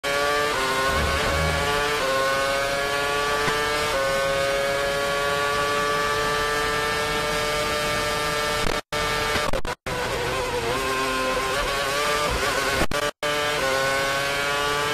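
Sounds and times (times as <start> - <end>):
race car engine at full throttle: 0.0 - 14.9
gear upshifts: 0.5 - 3.6.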